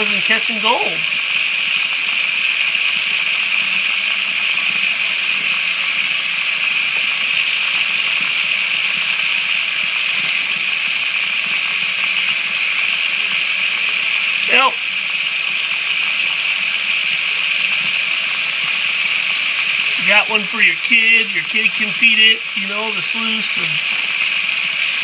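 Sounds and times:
tap water gushing into tub: 0:00.0 - 0:25.0.

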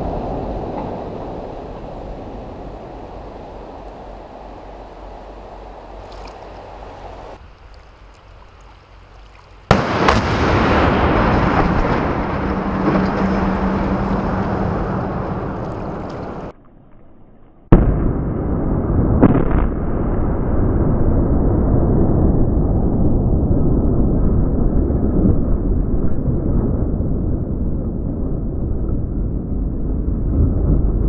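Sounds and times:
loud demolition blast: 0:09.7 - 0:16.5
rumbling of collapsing bridge: 0:09.7 - 0:16.5.

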